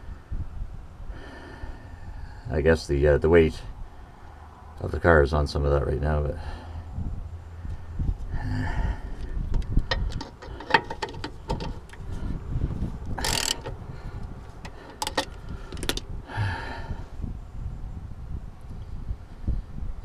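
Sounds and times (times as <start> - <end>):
socket ratchet clicking: 13.2 - 13.8, 14.6 - 16.0.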